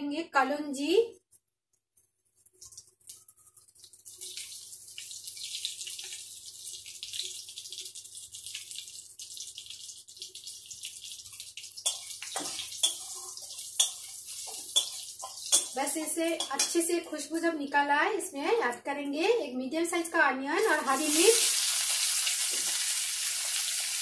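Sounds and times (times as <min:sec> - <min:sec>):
seeds sizzling in hot oil: 0:02.6 - 0:16.7, 0:20.6 - 0:24.0
spatula scraping wok: 0:11.8 - 0:16.8.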